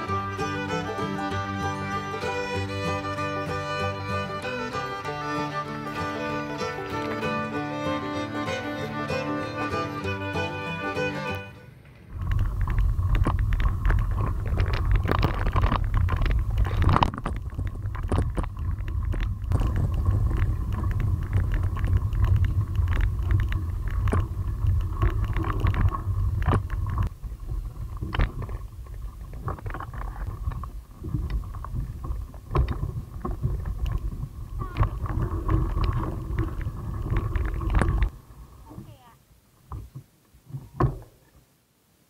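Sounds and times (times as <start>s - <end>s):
bicycle rattling over bumps: 11.8s - 38.1s
wind buffeting microphone: 12.0s - 38.7s.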